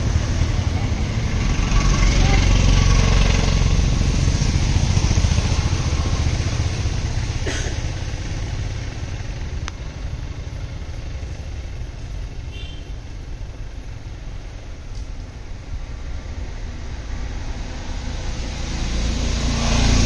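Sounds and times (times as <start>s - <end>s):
vehicle engine humming: 0.0s - 20.0s.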